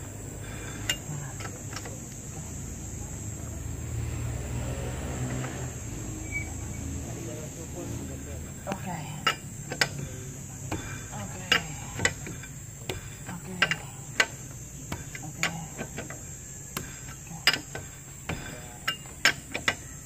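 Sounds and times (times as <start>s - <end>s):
lug wrench clinking on lug nuts: 0.4s - 2.6s, 8.4s - 20.0s.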